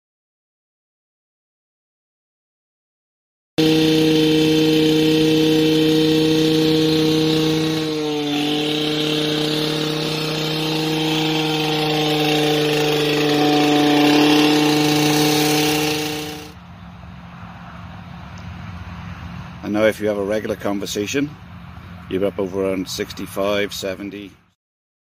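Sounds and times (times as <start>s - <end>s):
small engine running: 3.6s - 16.6s.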